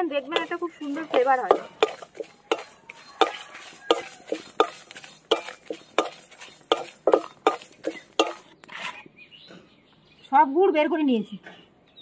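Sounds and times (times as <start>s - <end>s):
spatula scraping a metal pan: 0.0s - 9.0s.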